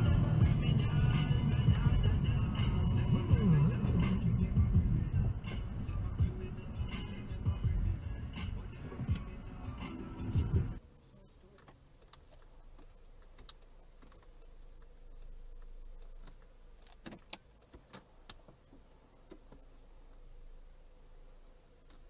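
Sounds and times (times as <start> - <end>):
background music: 0.0 - 10.8
car cabin hum: 0.0 - 22.0
faint irregular clicks: 11.4 - 20.3, 21.8 - 22.0.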